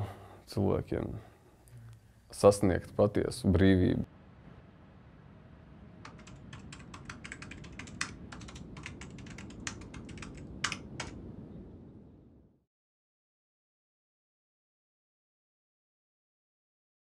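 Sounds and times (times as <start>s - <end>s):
low rumble: 4.0s - 12.6s
keyboard keys clicking: 6.1s - 11.2s.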